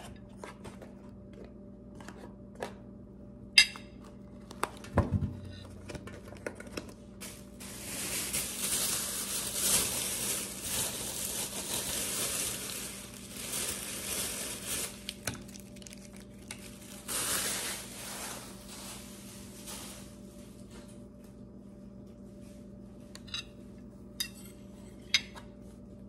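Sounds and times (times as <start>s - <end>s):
food packaging crinkling: 5.6s - 20.9s.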